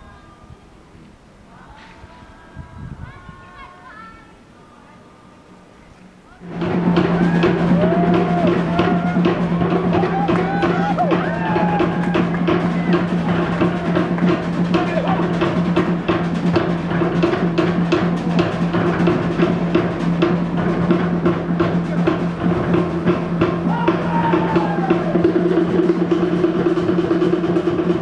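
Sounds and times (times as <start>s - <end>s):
fast dense drumming: 6.4s - 28.0s.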